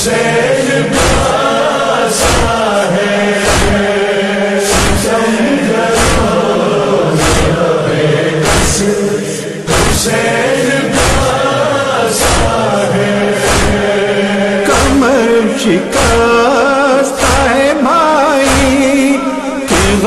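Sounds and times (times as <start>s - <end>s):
crowd of men chanting: 0.0s - 20.0s
rhythmic chest-beating strikes: 0.0s - 20.0s.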